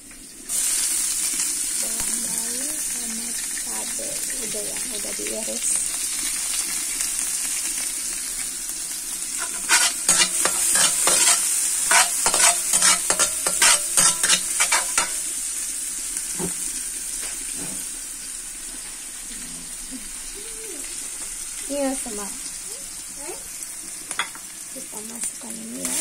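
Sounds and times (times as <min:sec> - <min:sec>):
garlic sizzling in oil: 0:00.0 - 0:26.0
spatula scraping and knocking wok: 0:09.4 - 0:15.4.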